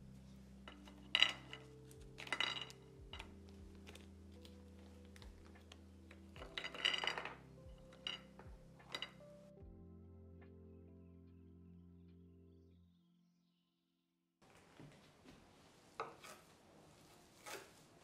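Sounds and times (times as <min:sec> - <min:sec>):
crackers clattering on ceramic plate: 0:00.7 - 0:09.2.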